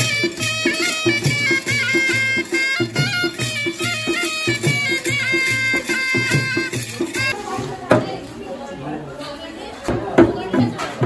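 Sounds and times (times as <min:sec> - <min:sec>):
reedy wind instrument melody: 0:00.0 - 0:07.4
steady drum beat: 0:00.0 - 0:08.0.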